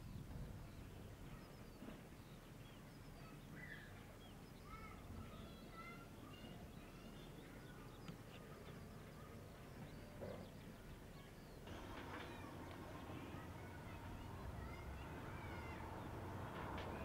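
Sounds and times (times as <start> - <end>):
distant low rumble: 11.6 - 17.0.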